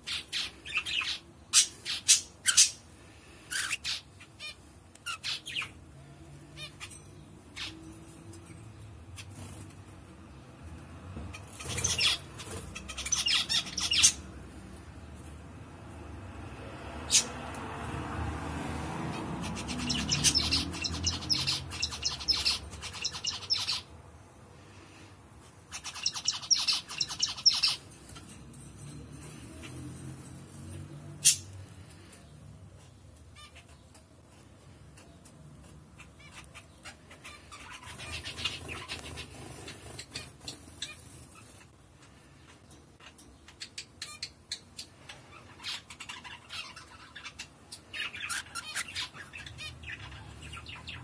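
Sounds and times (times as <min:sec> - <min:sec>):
budgerigar squawking and chirping: 0:00.0 - 0:02.8, 0:03.5 - 0:05.7, 0:11.4 - 0:14.3, 0:19.4 - 0:23.9, 0:25.7 - 0:27.8, 0:43.5 - 0:51.0.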